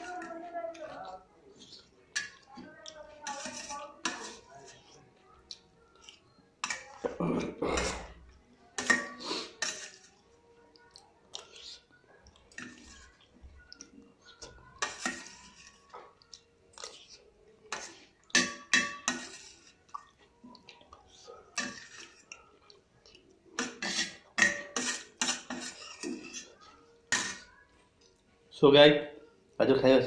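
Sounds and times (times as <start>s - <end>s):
metal spoon scraping steel plate: 3.2s - 4.8s, 8.8s - 10.2s, 14.4s - 15.9s, 16.8s - 19.8s, 21.6s - 22.3s, 23.6s - 27.5s.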